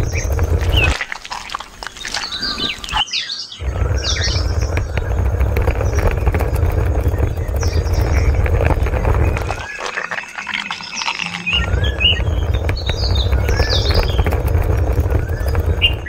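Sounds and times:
low rumble: 0.0s - 3.0s, 3.6s - 16.0s
birds chirping: 0.0s - 16.0s.

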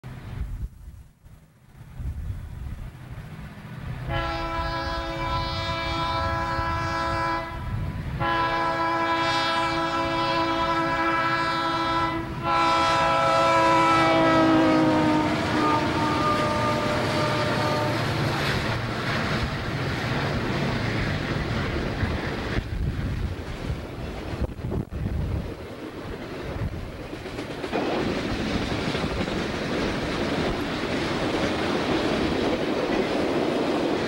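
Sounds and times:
freight train rumbling past: 0.0s - 34.0s
locomotive air horn blasts: 4.0s - 18.3s.

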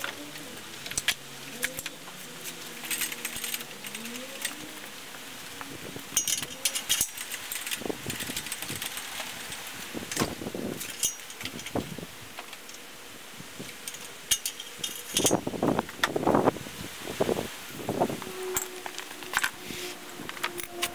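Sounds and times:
hoist chains clinking and rattling: 0.8s - 4.9s, 6.1s - 10.2s, 10.8s - 11.8s, 13.8s - 15.6s, 18.5s - 20.9s.

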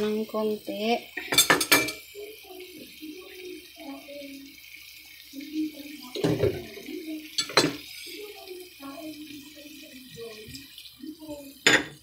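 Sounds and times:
stir-fry sizzling in a pan: 0.0s - 12.0s
spatula clattering against pan: 1.2s - 2.1s.

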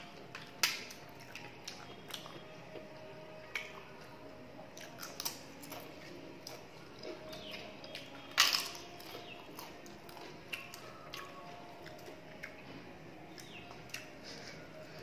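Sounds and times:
chewing crunches and clicks: 0.0s - 15.0s
sharp crunch of bitten cracker: 4.8s - 11.3s.

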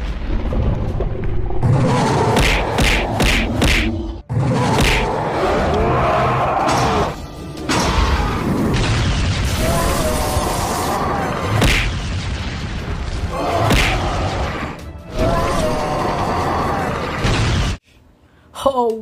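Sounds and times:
cartoon soundtrack music: 1.8s - 12.0s, 13.2s - 17.6s.

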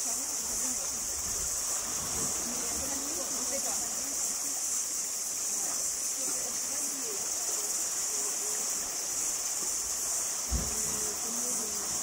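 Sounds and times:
high-pitched insect chorus: 0.0s - 12.0s
low thump: 10.5s - 11.0s.

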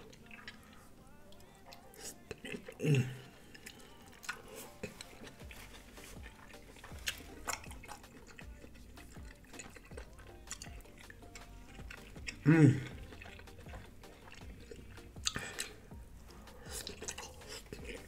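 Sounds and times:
wet chewing: 0.0s - 18.0s
small mouth clicks: 3.5s - 15.9s.

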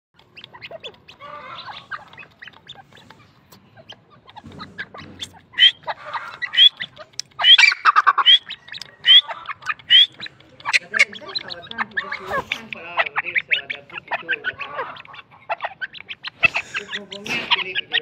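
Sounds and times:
beaks pecking grain in a dish: 0.2s - 18.0s
bird calling sharp rising notes: 3.9s - 14.6s.

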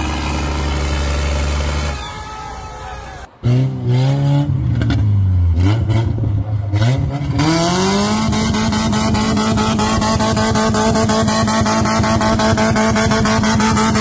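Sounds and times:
car engine revving hard: 3.4s - 14.0s.

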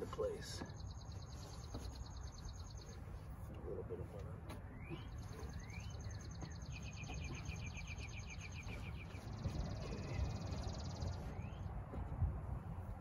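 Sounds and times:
songbird trilling: 4.7s - 11.7s.

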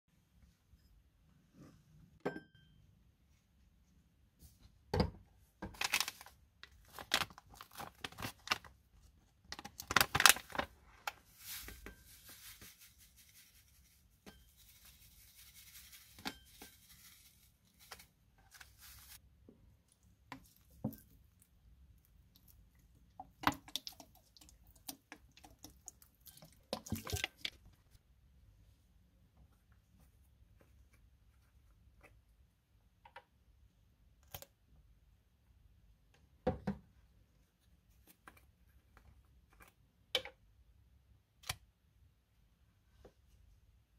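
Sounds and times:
plastic packet crinkling: 5.8s - 8.7s, 9.5s - 14.0s, 14.6s - 19.2s.

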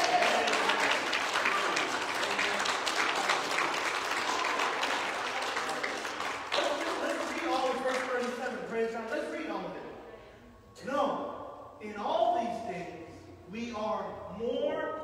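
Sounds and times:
congregation applauding: 0.0s - 8.9s
man speaking: 6.6s - 10.0s, 10.8s - 15.0s.

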